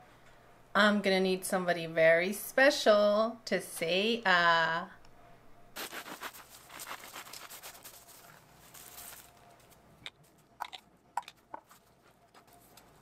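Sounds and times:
knife sawing crusty bread: 5.8s - 8.2s.

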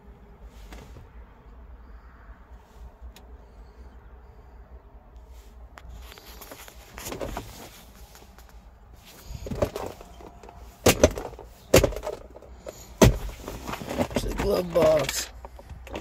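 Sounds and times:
plastic lid clacks and rustling: 9.4s - 16.0s.

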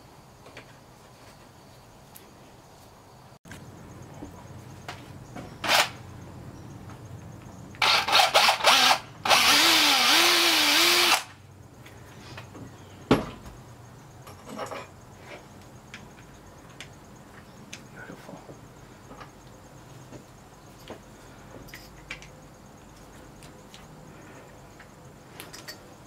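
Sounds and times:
cordless drill boring into plastic: 7.8s - 11.3s.

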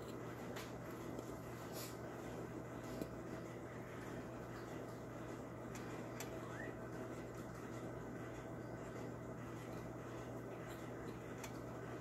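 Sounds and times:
low background hum: 0.0s - 12.0s.

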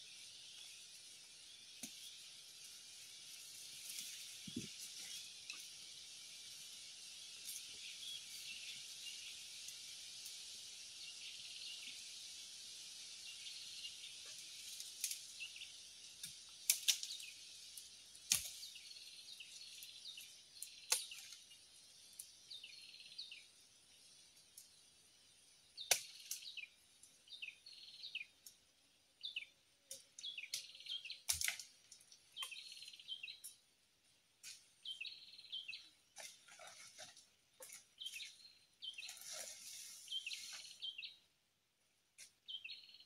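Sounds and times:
high insect-like hiss: 0.0s - 28.8s
small bird chirping: 6.6s - 10.4s, 13.2s - 15.9s, 18.3s - 24.8s, 25.7s - 28.6s, 29.2s - 31.6s, 32.2s - 33.6s, 34.4s - 36.0s, 37.6s - 41.2s, 42.2s - 43.0s.

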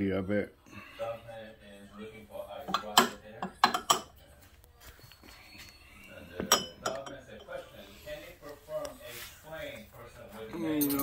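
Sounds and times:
glass cup clinking on metal: 2.7s - 4.1s, 6.4s - 7.6s.

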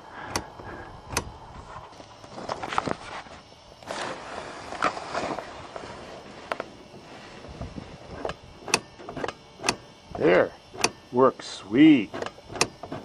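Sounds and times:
choke control clicking and rattling: 8.1s - 11.2s, 12.1s - 13.0s.

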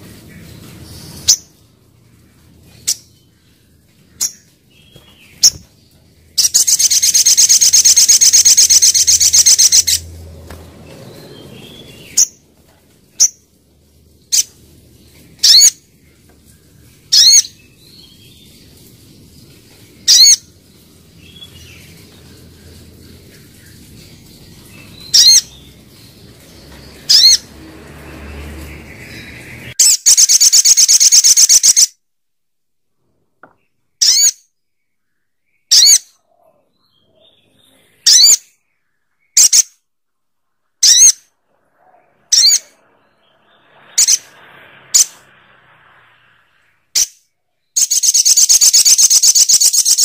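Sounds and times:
bird rattling trill: 6.4s - 10.0s, 47.8s - 50.0s.

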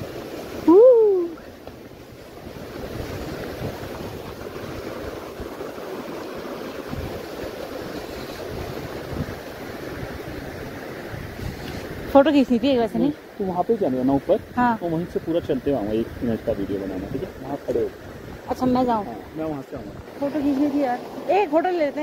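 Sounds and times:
wind buffeting microphone: 0.0s - 13.4s, 14.0s - 22.0s.

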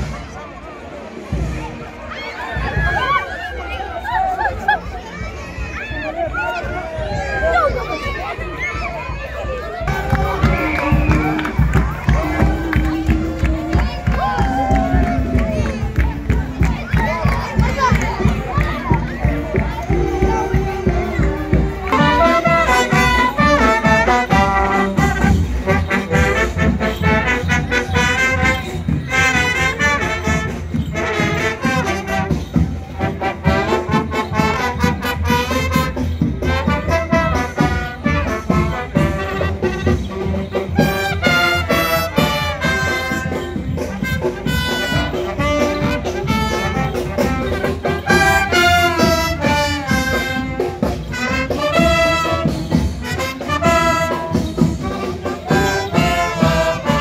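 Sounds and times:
steady drumbeat: 9.1s - 57.0s
trumpets and trombones playing: 18.6s - 57.0s.

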